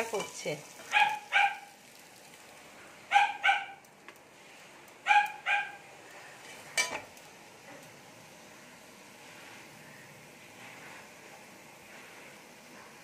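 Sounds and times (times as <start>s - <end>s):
dog barking: 0.9s - 1.8s, 3.1s - 3.8s, 5.0s - 5.8s.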